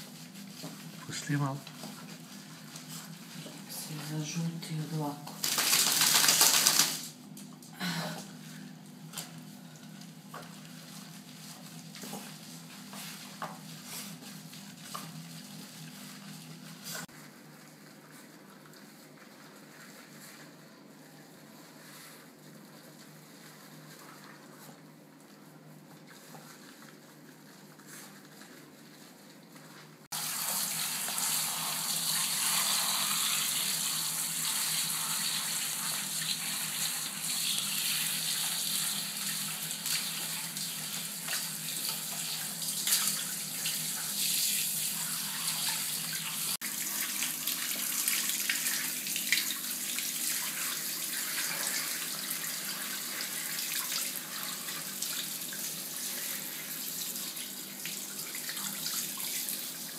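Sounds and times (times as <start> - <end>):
shower water hissing: 5.4 - 7.2, 30.1 - 59.9.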